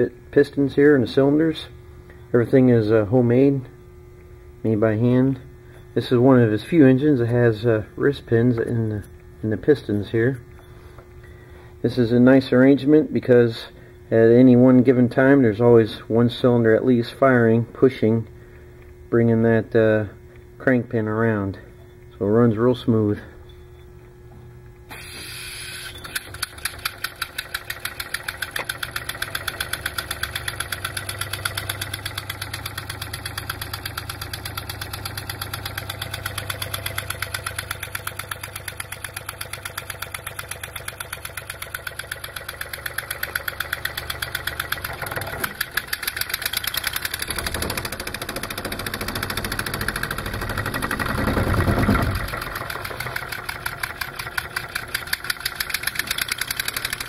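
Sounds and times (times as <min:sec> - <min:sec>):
pneumatic engine exhaust puffing: 0:24.9 - 0:57.0.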